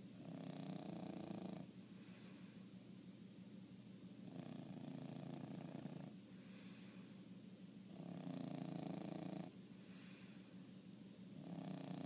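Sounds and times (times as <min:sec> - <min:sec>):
dog snoring: 0:00.2 - 0:02.4, 0:04.2 - 0:06.9, 0:07.9 - 0:10.3, 0:11.4 - 0:12.0.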